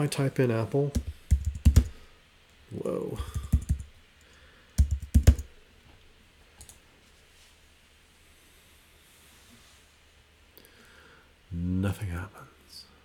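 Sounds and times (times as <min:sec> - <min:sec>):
typing on computer keyboard: 0:01.0 - 0:02.0, 0:03.2 - 0:03.9, 0:04.8 - 0:05.5.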